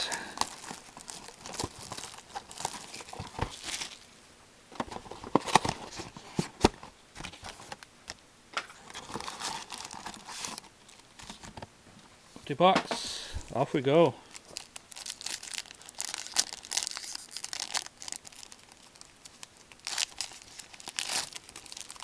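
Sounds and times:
packs crinkling: 0:00.0 - 0:04.1, 0:08.8 - 0:11.6, 0:14.3 - 0:22.0
cardboard tearing: 0:15.1 - 0:18.9, 0:19.6 - 0:22.0.

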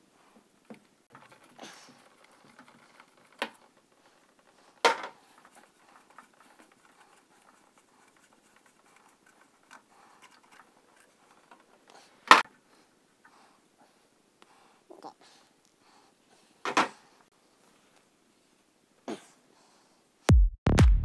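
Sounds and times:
plastic pipes knocking and clicking: 0:00.7 - 0:12.4.

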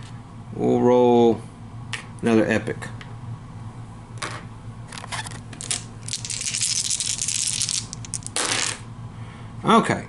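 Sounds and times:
dice clicking and rattling: 0:05.6 - 0:08.4.

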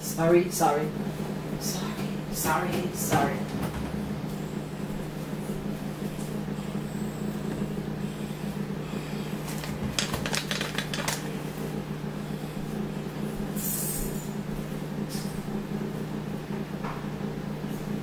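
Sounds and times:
low appliance hum: 0:00.0 - 0:18.0
utensil and plastic container clattering: 0:09.4 - 0:11.4.

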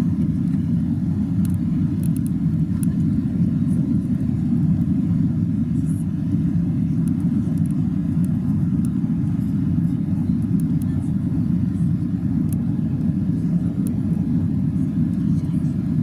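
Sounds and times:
airplane cabin rumble: 0:00.0 - 0:16.0.

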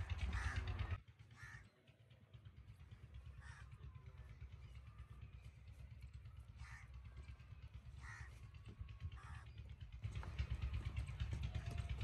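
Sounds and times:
bird harsh calls: 0:00.0 - 0:02.0, 0:02.8 - 0:11.8.

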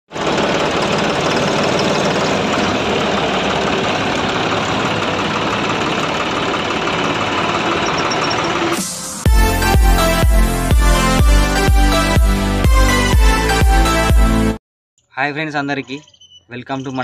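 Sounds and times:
engine idling: 0:00.1 - 0:14.0.

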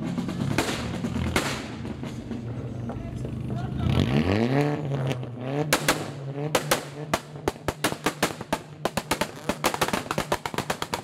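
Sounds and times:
exhaust pops and bangs: 0:00.0 - 0:04.0, 0:04.7 - 0:11.0
car engine revving on limiter: 0:03.8 - 0:07.4.

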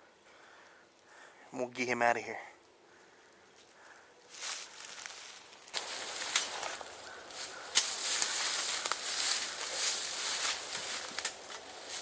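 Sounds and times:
footsteps crunching dry leaves: 0:04.3 - 0:12.0
sharp crack: 0:05.7 - 0:12.0.

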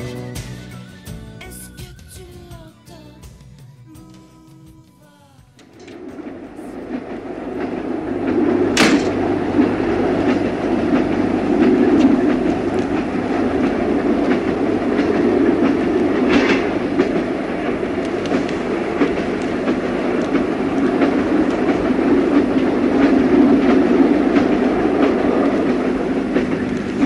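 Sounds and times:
train rumble: 0:00.0 - 0:27.0
wheels clicking over rails: 0:05.4 - 0:27.0.

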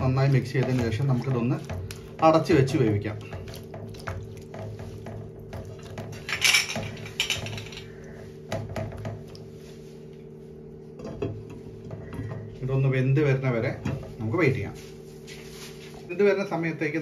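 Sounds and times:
spatula stirring vegetables in water: 0:00.0 - 0:09.8.

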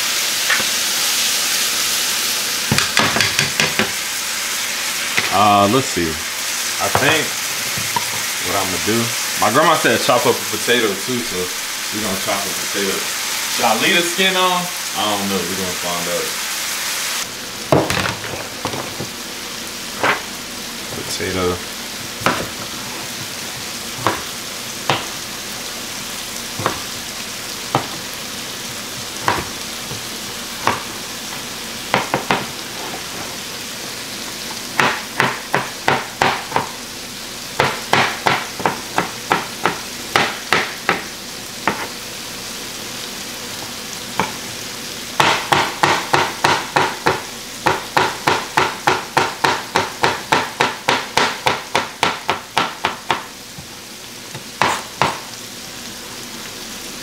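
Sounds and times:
chicken sizzling in a pan: 0:00.0 - 0:57.0
knife chopping on plastic board: 0:02.7 - 0:03.9, 0:22.2 - 0:22.6, 0:24.0 - 0:24.3, 0:26.6 - 0:26.9, 0:29.2 - 0:30.0, 0:30.6 - 0:30.8, 0:34.8 - 0:36.7, 0:37.6 - 0:41.9, 0:45.2 - 0:53.3, 0:54.4 - 0:55.2.

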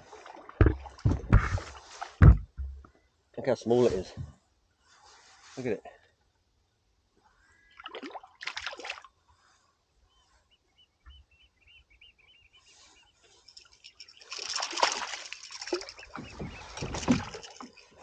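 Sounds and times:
fish splashing at surface: 0:14.3 - 0:17.7.

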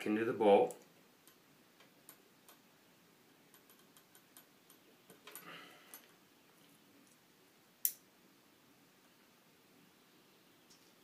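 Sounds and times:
small metallic clicks: 0:03.5 - 0:06.2.

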